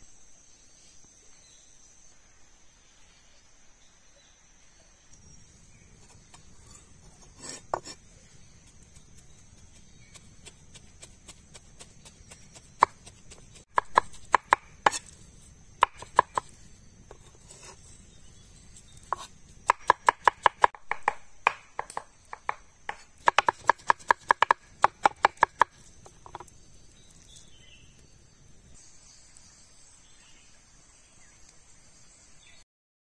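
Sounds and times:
knives chopping on wooden board: 12.5s - 15.2s, 15.8s - 16.5s, 19.1s - 26.4s.

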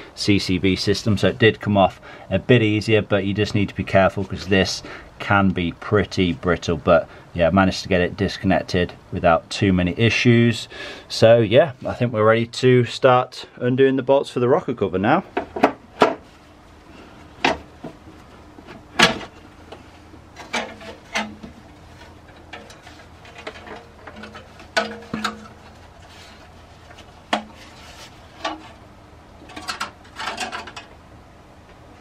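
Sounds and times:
knocks and clunks of engine parts: 15.3s - 16.3s, 17.3s - 26.1s, 29.4s - 31.0s
scraping and rattling: 20.3s - 28.8s, 29.4s - 30.9s.

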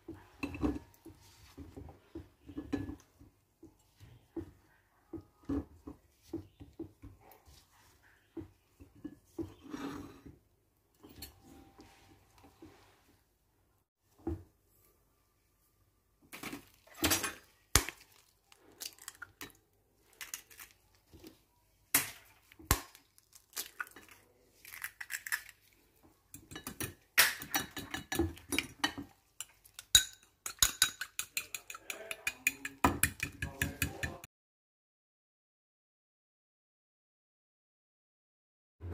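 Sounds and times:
eggs being cracked: 17.7s - 21.0s, 21.9s - 25.8s, 26.4s - 34.2s
ceramic bowls clinking: 26.3s - 34.3s
fork beating eggs in bowl: 26.3s - 34.3s.

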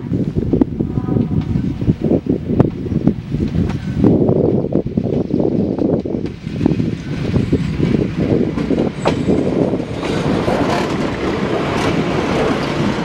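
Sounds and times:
diesel railcar rumbling past: 0.0s - 13.0s
wheel clicks over rail joints: 7.8s - 13.0s.

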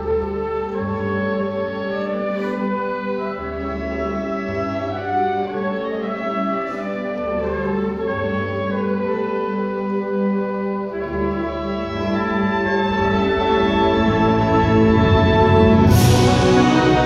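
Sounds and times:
concert band brass chords: 0.0s - 17.0s
low notes: 10.9s - 17.0s.

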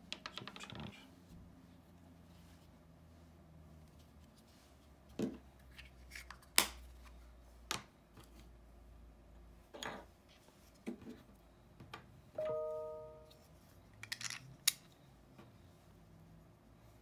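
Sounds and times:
plastic parts clicking together: 14.0s - 15.0s.

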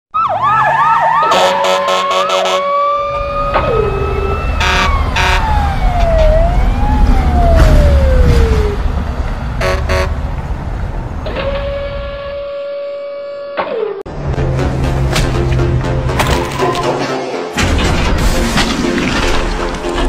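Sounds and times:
sirens wailing: 0.1s - 14.0s.

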